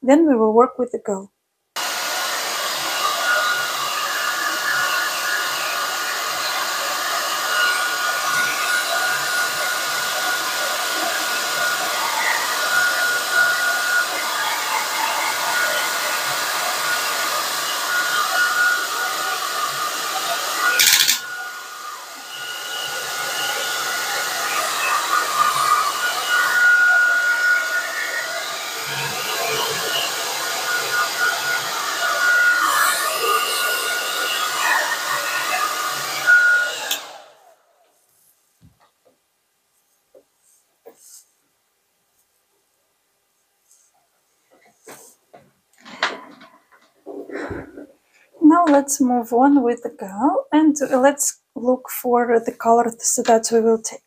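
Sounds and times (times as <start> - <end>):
hair dryer blowing: 1.8 - 37.6, 47.1 - 48.8.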